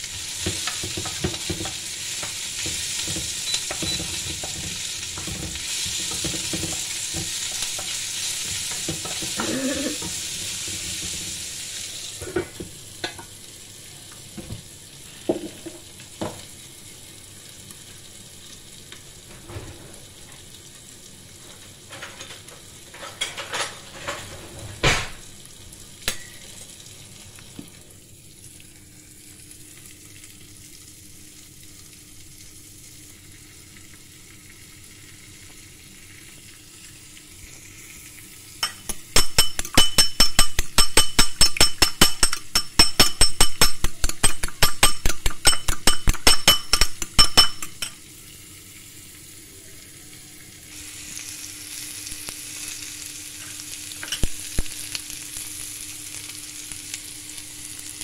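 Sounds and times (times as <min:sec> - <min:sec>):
vegetables sizzling in a pan: 0:00.0 - 0:58.0
egg beaten in ceramic bowl: 0:38.6 - 0:47.9.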